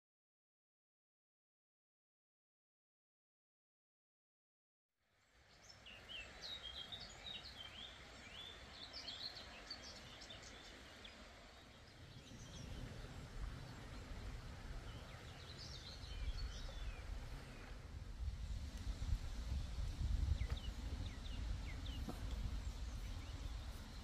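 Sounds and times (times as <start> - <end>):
steady background hiss: 5.2 - 24.0
small birds chirping: 5.5 - 17.8, 19.5 - 24.0.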